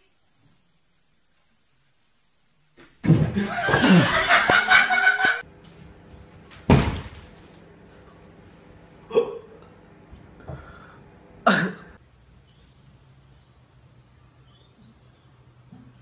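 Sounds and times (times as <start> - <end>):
person laughing loudly: 3.1 - 5.4
cat falling from chair clatter: 6.6 - 7.3.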